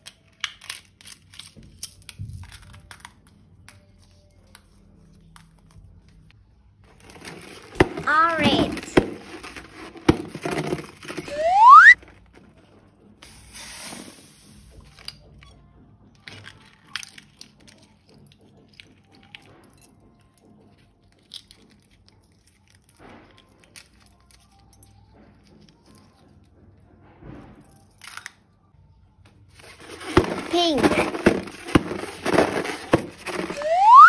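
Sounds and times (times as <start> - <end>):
loud rising whistle: 11.3 - 12.0, 33.6 - 34.0.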